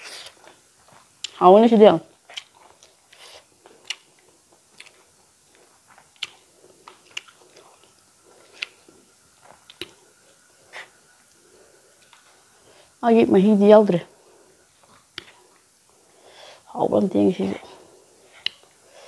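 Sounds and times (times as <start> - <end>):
close chewing: 0.0 - 1.4, 2.1 - 12.4, 18.2 - 19.0.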